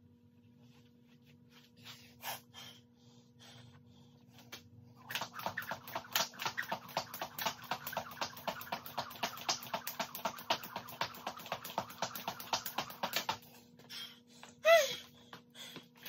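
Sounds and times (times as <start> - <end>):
faint electrical hum: 0.0 - 16.0
jump rope hitting concrete: 5.0 - 13.4.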